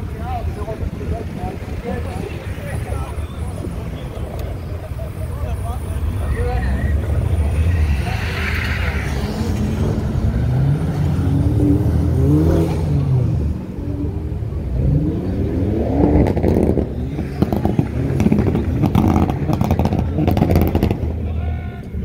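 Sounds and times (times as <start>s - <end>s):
car engines accelerating hard: 0.0s - 22.0s
sharp exhaust pops and crackles: 16.2s - 21.2s.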